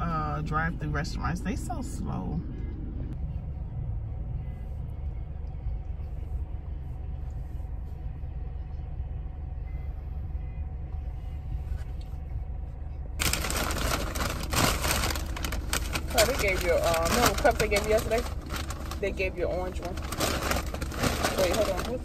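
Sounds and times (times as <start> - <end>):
car engine idling: 0.0 - 22.0
loud rustling: 13.2 - 22.0.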